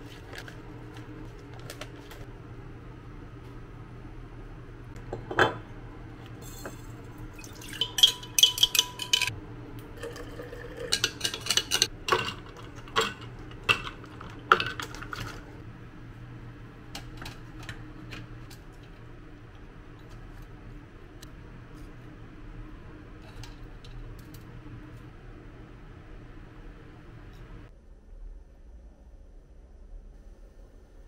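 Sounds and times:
ice cubes clinking in glass pitcher: 6.4s - 9.3s, 10.0s - 15.5s.

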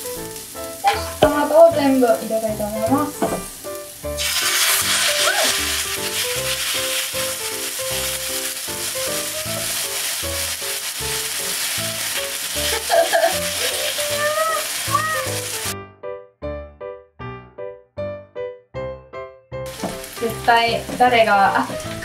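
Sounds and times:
tomatoes sizzling in frying pan: 0.0s - 15.8s, 19.7s - 22.0s
light piano background music: 0.0s - 22.0s
chopsticks stirring: 4.2s - 15.7s.

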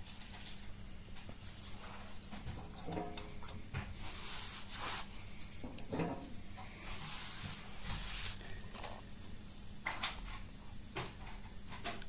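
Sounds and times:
faint rustling: 3.3s - 9.3s.

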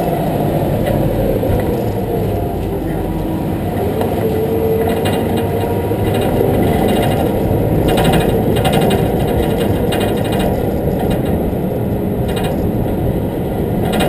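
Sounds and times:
truck engine: 0.0s - 14.0s
fast rattling clatter: 4.9s - 13.2s, 13.8s - 14.0s.

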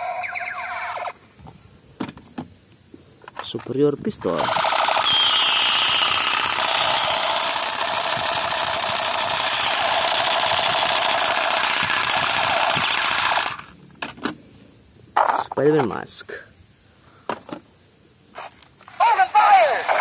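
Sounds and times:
toy gun electronic firing buzz: 4.3s - 13.7s.

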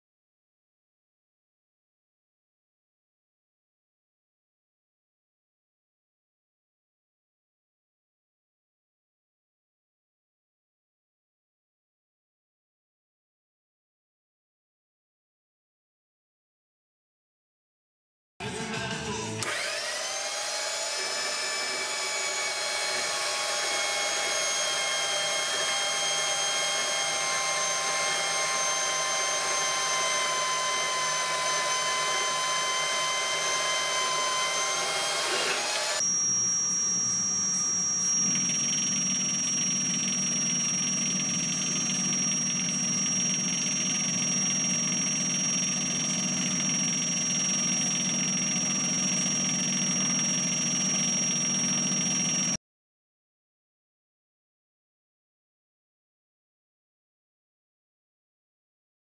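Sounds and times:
band saw cutting metal: 19.4s - 52.6s
metal lathe whining: 19.4s - 52.6s.

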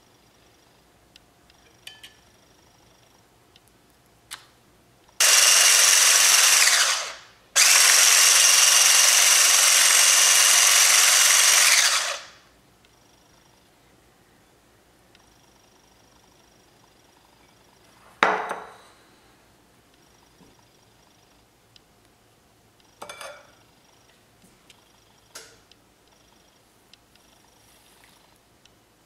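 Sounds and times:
hand blender whirring: 5.2s - 12.4s.

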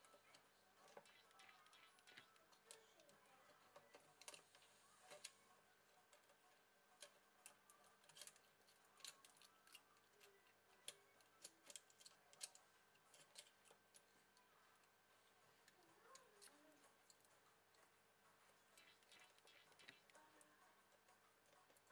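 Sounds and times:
fingers clicking on phone parts: 6.1s - 14.9s.

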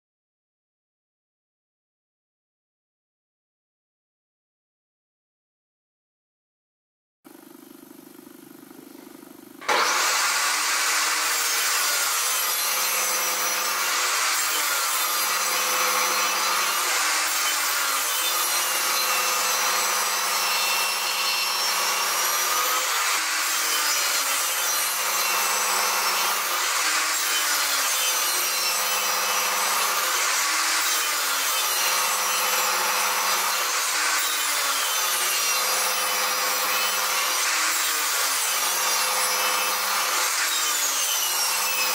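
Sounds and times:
table saw cutting wood: 9.0s - 41.9s.

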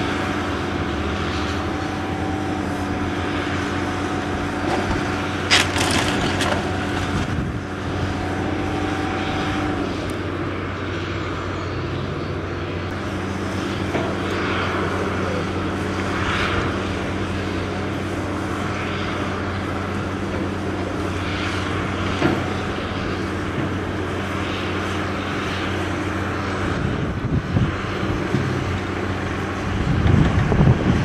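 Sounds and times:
excavator diesel engine running: 0.0s - 31.0s
rubble shifting crashes: 4.7s - 7.5s.

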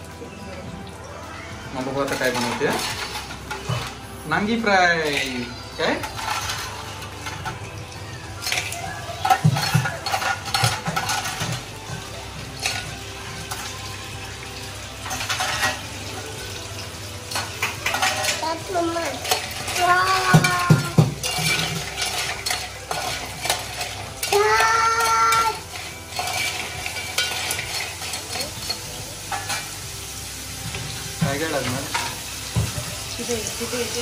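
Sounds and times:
food sizzling: 0.0s - 34.0s
utensil scraping and clinking pan: 1.8s - 7.8s, 8.4s - 13.9s, 15.0s - 29.9s.

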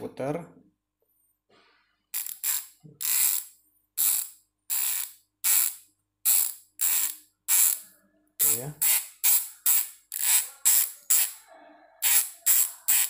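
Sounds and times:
bicycle hub ratchet clicking: 2.1s - 7.8s, 8.4s - 11.4s, 12.0s - 13.0s.

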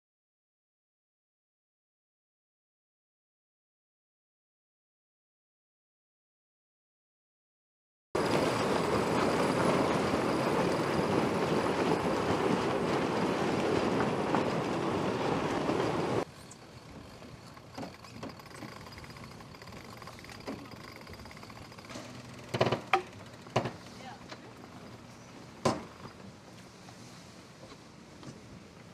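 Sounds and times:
wind and water rushing: 8.2s - 16.3s.

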